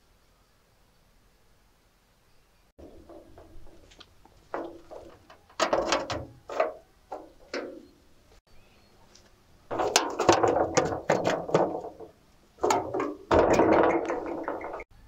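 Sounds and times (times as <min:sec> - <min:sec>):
stones knocking on steel sheet: 0:02.8 - 0:07.9, 0:09.7 - 0:14.9.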